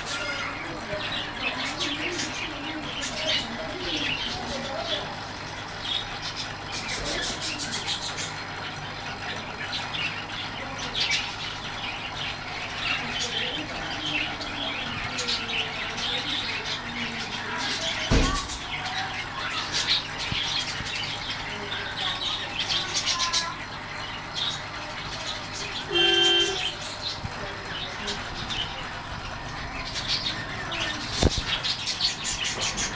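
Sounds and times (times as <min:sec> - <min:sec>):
faint voices: 0:00.0 - 0:32.9
small birds chirping: 0:00.0 - 0:32.9
thump: 0:18.1 - 0:18.4.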